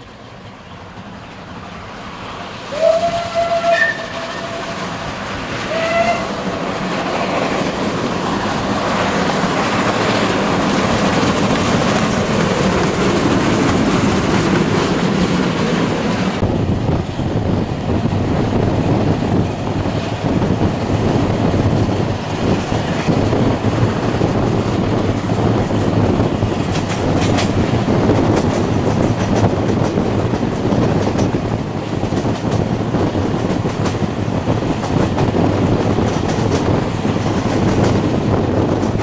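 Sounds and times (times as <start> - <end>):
steam locomotive exhaust: 0.0 - 7.2
steam whistle blasts: 2.7 - 4.9, 5.7 - 6.4
train wheel clatter: 2.7 - 39.0.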